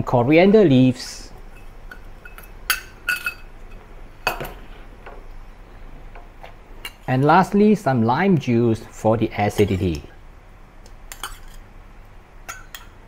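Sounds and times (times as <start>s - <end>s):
utensils clinking on metal pot: 1.6s - 4.5s.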